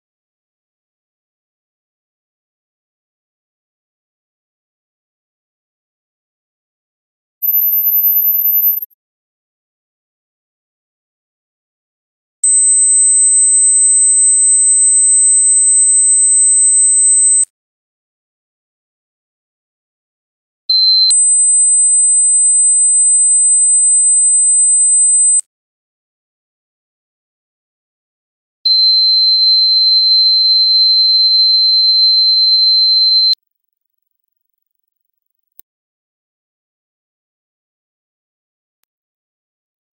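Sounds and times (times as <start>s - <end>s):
click: 7.4s - 8.9s
high-pitched whistle tone: 7.4s - 8.9s.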